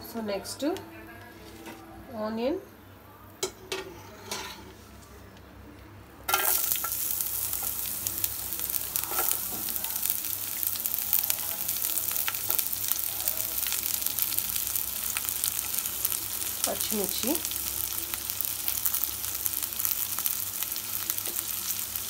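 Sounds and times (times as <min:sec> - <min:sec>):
onions sizzling in hot oil: 0:06.3 - 0:22.0.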